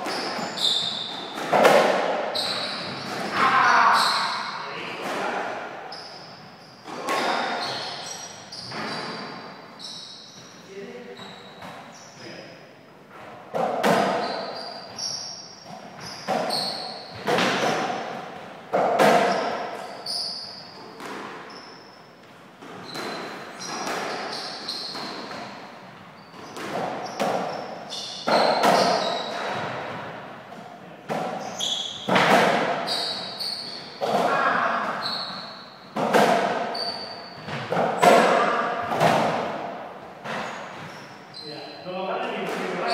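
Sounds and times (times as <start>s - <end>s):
shoe squeaks: 0.0s - 1.5s, 2.2s - 5.0s, 5.8s - 12.4s, 13.9s - 18.2s, 19.2s - 30.0s, 31.3s - 38.9s, 40.2s - 42.9s
racquet strikes: 0.0s - 9.5s, 13.5s - 22.0s, 22.6s - 41.2s.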